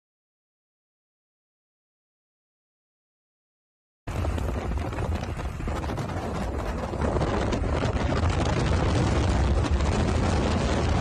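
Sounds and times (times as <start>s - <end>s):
road and engine rumble: 4.1s - 11.0s
wind buffeting microphone: 4.1s - 11.0s.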